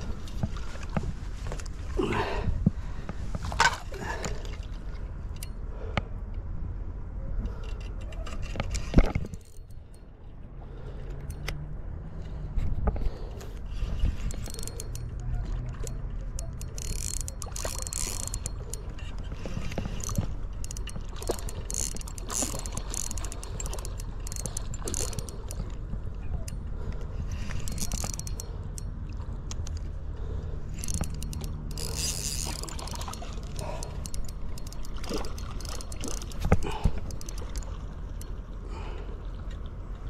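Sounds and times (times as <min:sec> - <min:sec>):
fishing reel whirring and clicking: 0:07.5 - 0:10.1, 0:13.1 - 0:38.4.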